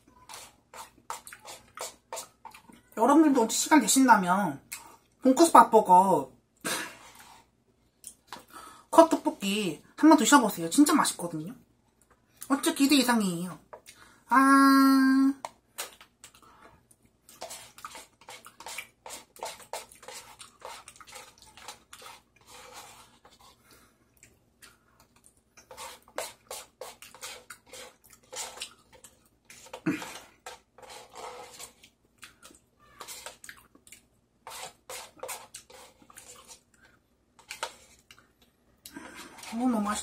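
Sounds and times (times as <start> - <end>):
spoon scraping in paper cup: 0.1 - 2.8, 17.3 - 23.6, 25.6 - 31.9, 32.8 - 33.4, 34.4 - 36.7, 37.4 - 38.1, 39.0 - 40.0
wet chewing and smacking: 0.8 - 2.9, 15.7 - 22.4, 24.1 - 30.4, 31.6 - 39.0.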